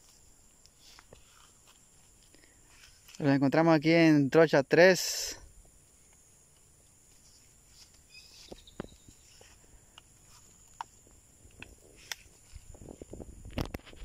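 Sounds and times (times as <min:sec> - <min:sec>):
high-pitched insect drone: 0:00.0 - 0:13.6
small clicks and rustles: 0:05.8 - 0:14.0.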